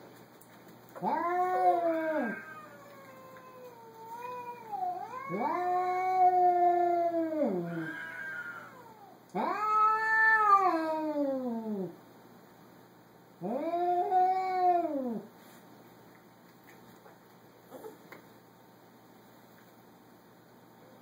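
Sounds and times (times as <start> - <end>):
cat yowling: 1.0 - 11.9
cat wavering moan: 1.0 - 12.0, 13.4 - 15.3.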